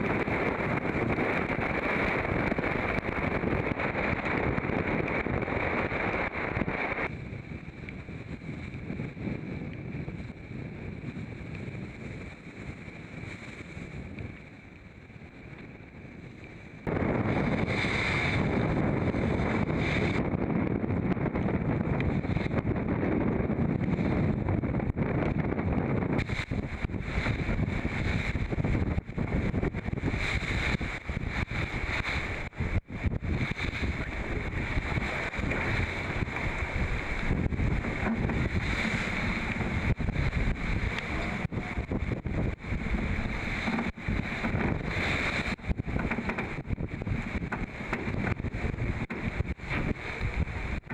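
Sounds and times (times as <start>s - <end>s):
water rushing past hull: 0.0s - 9.4s, 10.1s - 50.9s
wind blasting across microphone: 0.0s - 50.9s.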